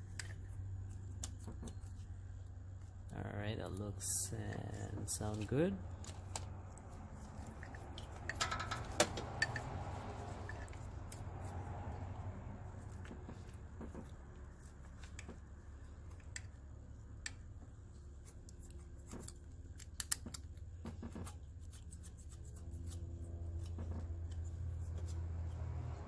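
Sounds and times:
steady low hum: 0.0s - 26.0s
metal tool clicks and scrapes: 7.2s - 11.2s, 18.1s - 23.0s.

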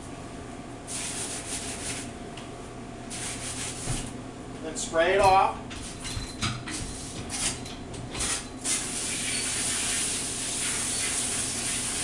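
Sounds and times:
spray valve spraying water: 8.6s - 12.0s.

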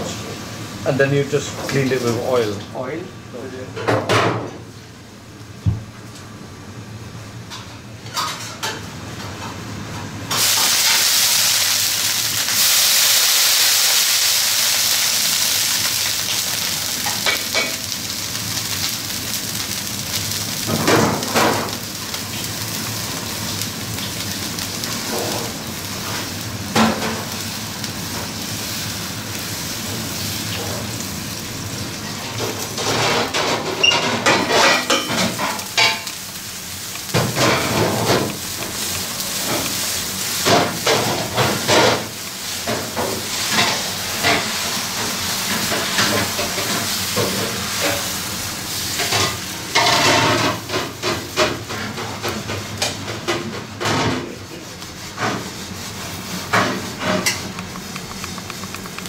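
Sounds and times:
batter sizzling on a griddle: 10.3s - 59.0s
ladle scraping and knocking griddle: 36.9s - 44.5s, 49.0s - 59.0s.

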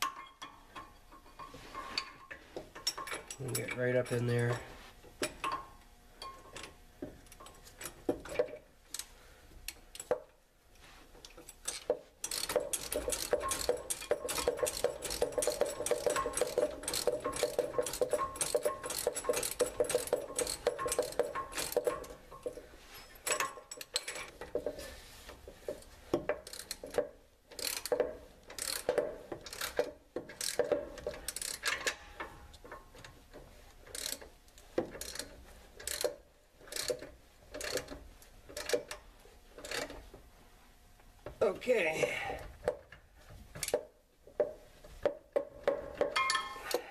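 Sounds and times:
socket ratchet clicking: 11.6s - 22.2s, 26.3s - 32.0s, 33.9s - 34.3s, 35.0s - 39.0s.

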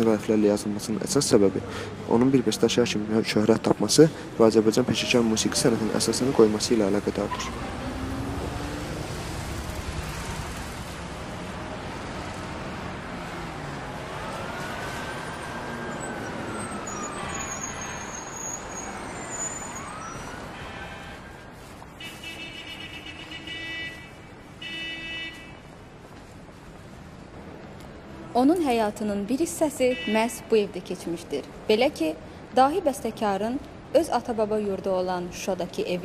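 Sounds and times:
city street traffic: 0.0s - 36.0s
siren wailing: 13.5s - 21.5s.

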